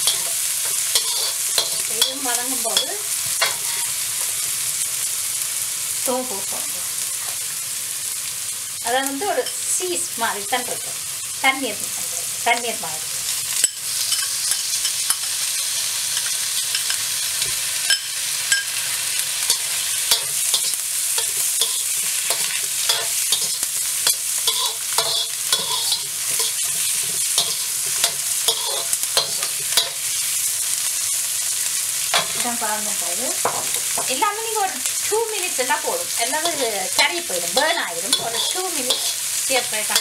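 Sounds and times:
metal spatula scraping a wok: 0:00.0 - 0:04.5, 0:13.6 - 0:30.4, 0:32.1 - 0:32.4, 0:36.4 - 0:40.0
food sizzling in hot oil: 0:00.0 - 0:40.0.

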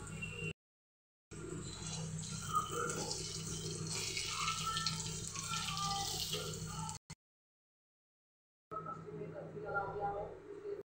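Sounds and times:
fritters sizzling in hot oil: 0:01.4 - 0:07.0
metal spoon stirring: 0:01.5 - 0:06.7.

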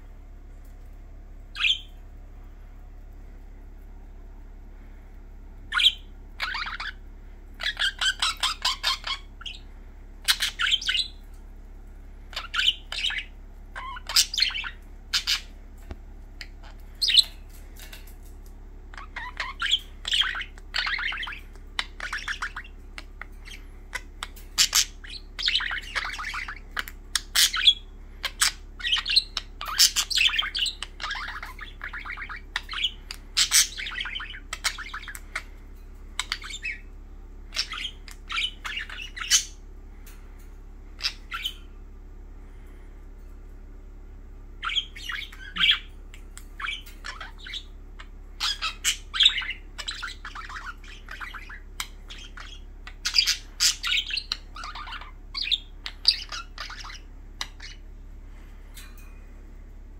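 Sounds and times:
faint steady hum: 0:00.0 - 0:59.9
budgerigars chattering: 0:01.6 - 0:01.9, 0:05.7 - 0:07.0, 0:07.6 - 0:11.2, 0:12.3 - 0:15.6, 0:16.4 - 0:17.4, 0:18.9 - 0:36.9, 0:37.5 - 0:39.6, 0:41.0 - 0:41.7, 0:44.6 - 0:57.9.

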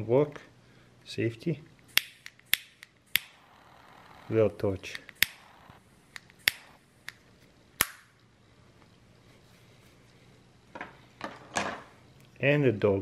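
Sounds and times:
faint gas hiss: 0:00.0 - 0:02.2
lighter igniter clicking: 0:01.9 - 0:03.5, 0:04.9 - 0:05.5, 0:06.1 - 0:07.2, 0:07.8 - 0:08.2.

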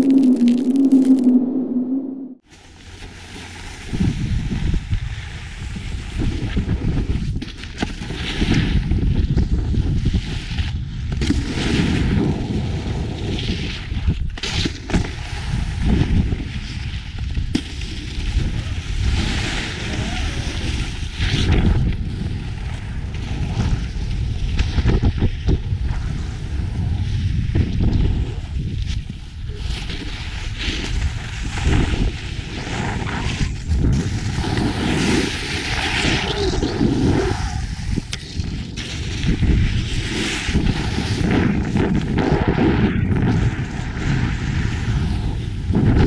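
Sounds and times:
snowboard scraping on snow: 0:02.6 - 0:06.6, 0:18.0 - 0:21.4, 0:29.6 - 0:45.5
wind buffeting microphone: 0:20.0 - 0:29.6, 0:31.1 - 0:46.0.

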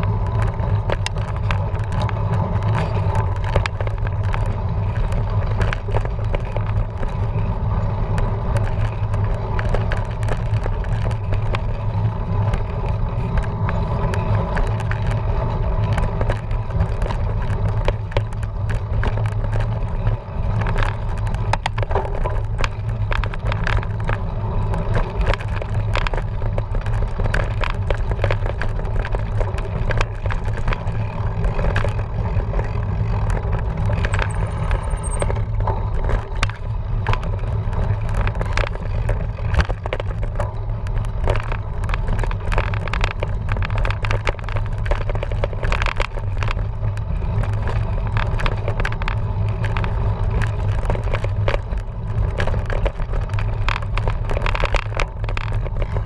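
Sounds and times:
bike rattling and clicking: 0:00.0 - 0:56.0
bike rumbling over dirt trail: 0:00.0 - 0:56.0.

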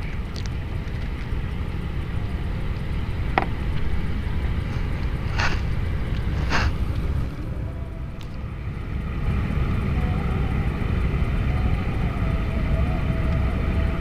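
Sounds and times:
wind rumble on microphone: 0:00.0 - 0:14.0
rustling scrapes: 0:04.6 - 0:07.3.

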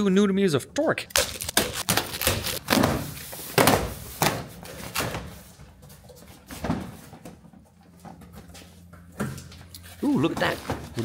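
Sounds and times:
box cutter slitting packing tape: 0:01.1 - 0:02.9.

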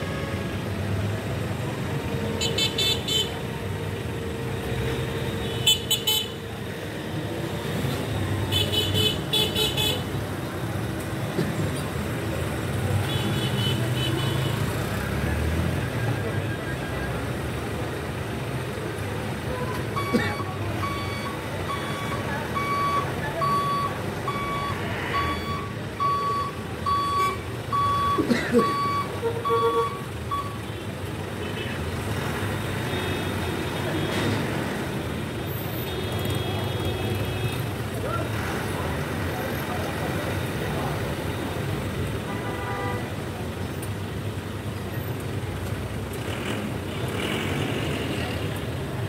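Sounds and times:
truck reversing alarm beeping: 0:19.9 - 0:30.7.

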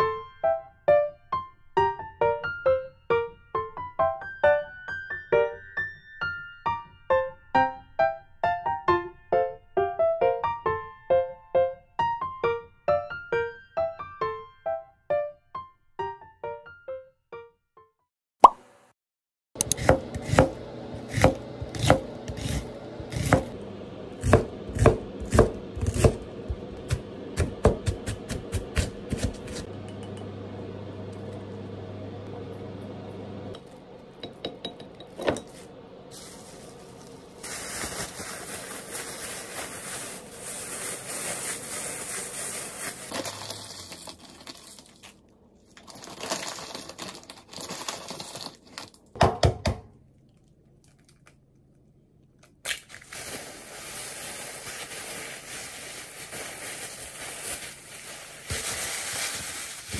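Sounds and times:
knife chopping on wooden board: 0:19.6 - 0:23.5, 0:24.2 - 0:26.2, 0:26.9 - 0:29.7
plastic bag crinkling: 0:35.4 - 0:49.1, 0:52.7 - 0:59.9.

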